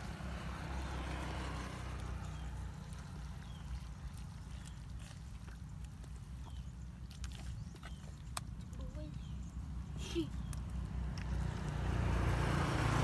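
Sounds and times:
hands sloshing in muddy water: 0.4 - 8.9.

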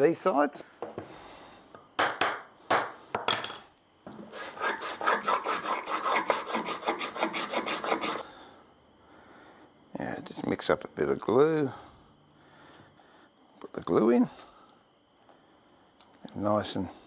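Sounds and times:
hand tool scraping hardwood: 4.2 - 8.2.

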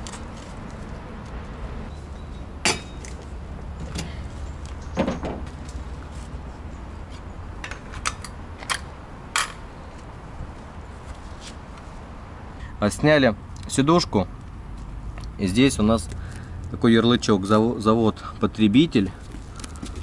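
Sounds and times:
metal clinks and knocks: 2.1 - 3.2.

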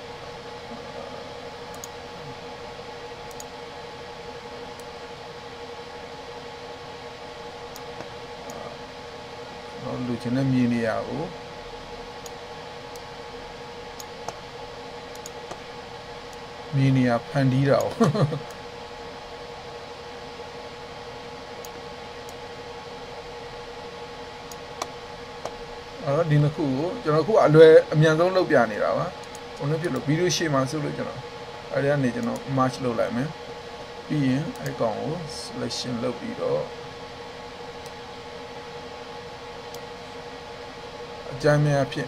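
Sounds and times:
faint steady hum: 0.0 - 42.0
room and microphone hiss: 0.0 - 42.0
faint computer mouse clicks: 1.7 - 2.0.

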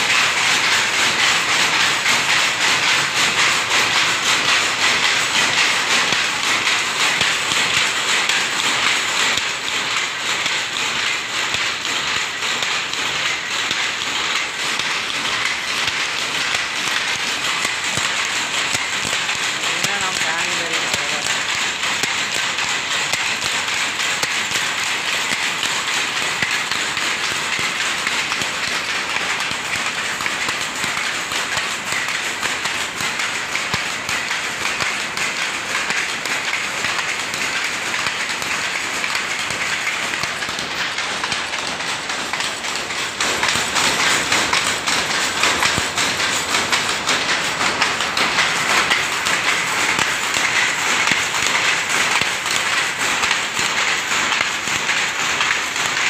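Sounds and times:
power looms clattering: 0.0 - 56.0.

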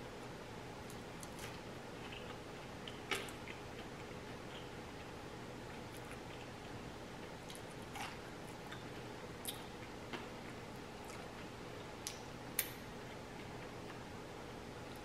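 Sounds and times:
faint steady hum: 0.0 - 15.0
person chewing: 0.8 - 5.1, 5.7 - 6.8, 7.4 - 14.0.

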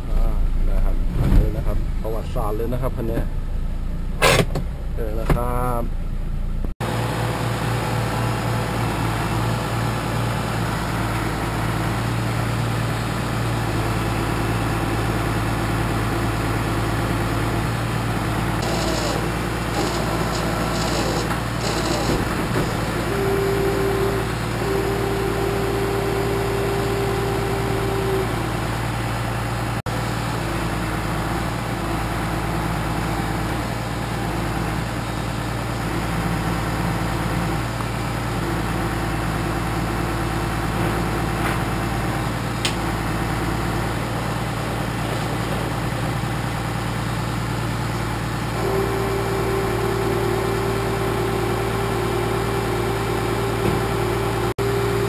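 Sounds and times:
high whine: 0.0 - 4.3, 48.6 - 55.0
truck engine idling: 0.0 - 55.0.

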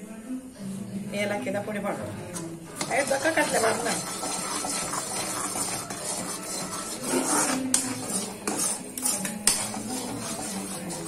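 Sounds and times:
metal spoon scraping pan: 2.3 - 11.0
spoon clinking against pan: 7.6 - 11.0.

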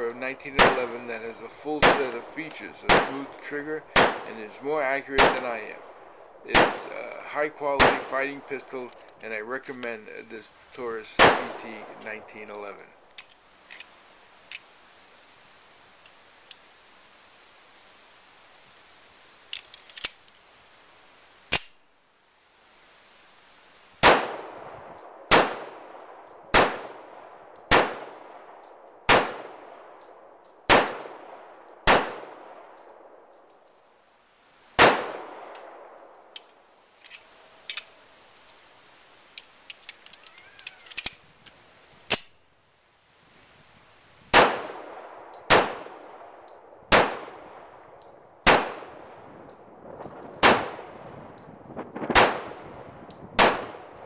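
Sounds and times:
pistol shots with echo: 0.3 - 9.0, 11.1 - 12.5, 24.0 - 33.0, 34.8 - 36.2, 44.3 - 47.8, 48.4 - 49.3, 50.4 - 51.0, 52.1 - 52.8, 53.4 - 54.0
light clicks: 39.3 - 42.3.

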